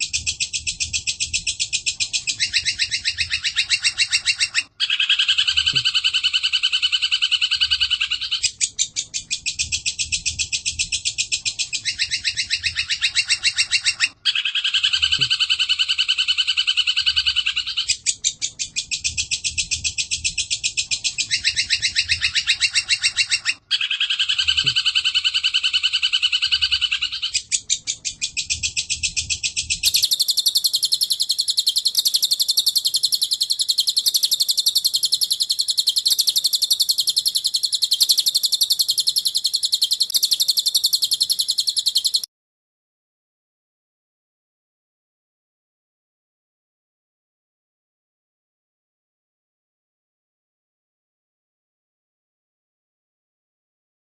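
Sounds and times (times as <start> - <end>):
songbird pulsed trills: 0.0 - 42.3
high thin bird trill: 20.4 - 42.3.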